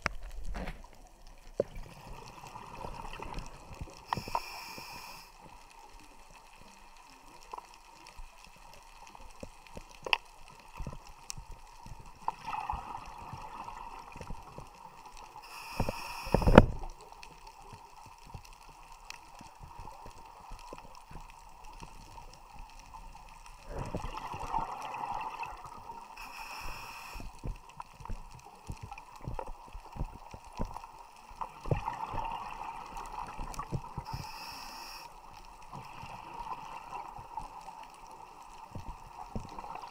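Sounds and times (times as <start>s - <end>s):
small clicks: 3.2s - 12.4s
short hisses: 4.1s - 5.3s, 15.4s - 16.6s, 26.2s - 27.3s, 34.1s - 35.1s
regulator breathing underwater: 4.1s - 5.4s, 15.4s - 16.8s, 26.2s - 27.4s, 34.0s - 35.2s.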